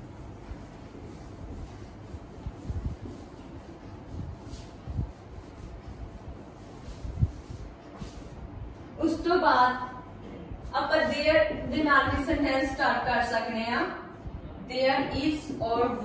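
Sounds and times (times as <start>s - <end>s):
eraser rubbing on whiteboard: 0.0s - 9.2s.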